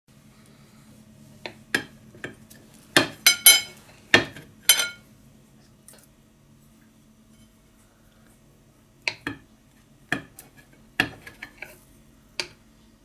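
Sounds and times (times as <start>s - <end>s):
knife clinking on plate: 3.3s - 3.7s, 4.7s - 5.0s.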